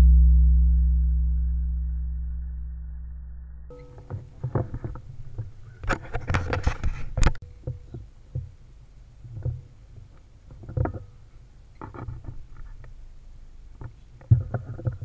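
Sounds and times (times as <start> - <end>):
rifle handling knocks and rubs: 4.0 - 8.5.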